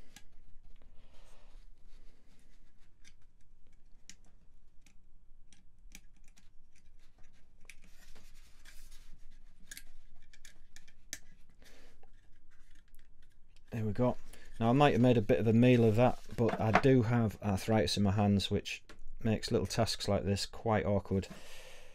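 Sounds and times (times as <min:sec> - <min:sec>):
small plastic clicks and knocks: 0:03.0 - 0:07.9
rubbing and scraping: 0:06.0 - 0:17.0.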